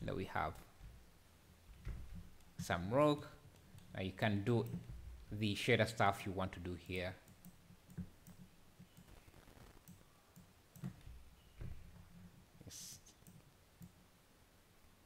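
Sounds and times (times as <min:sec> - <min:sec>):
computer mouse clicks: 0:07.2 - 0:11.0, 0:13.1 - 0:14.0.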